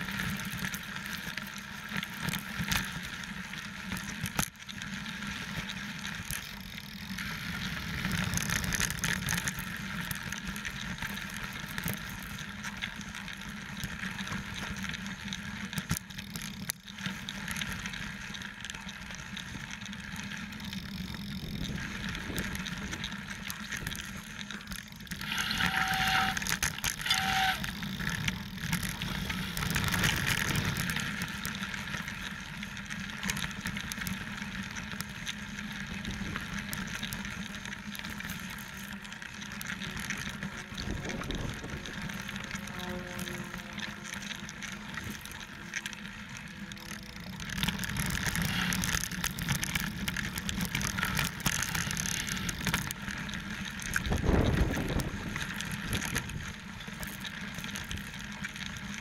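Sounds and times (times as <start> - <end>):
wind and tyres on dirt: 0.0 - 59.0
short squeaks: 25.2 - 27.7.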